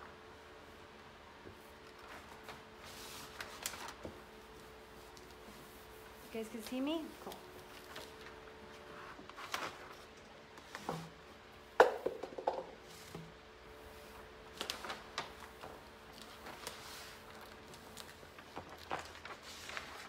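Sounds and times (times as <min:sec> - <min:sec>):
plastic sheet rustling: 0:01.6 - 0:11.2, 0:13.9 - 0:20.0.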